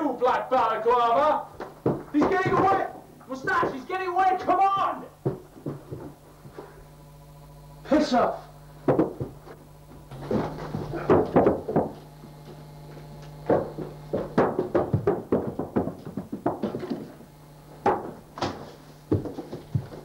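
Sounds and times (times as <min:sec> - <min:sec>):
heavy thuds and knocks: 0:01.6 - 0:03.9, 0:08.8 - 0:09.4, 0:10.0 - 0:12.0, 0:13.4 - 0:17.2, 0:17.8 - 0:20.0.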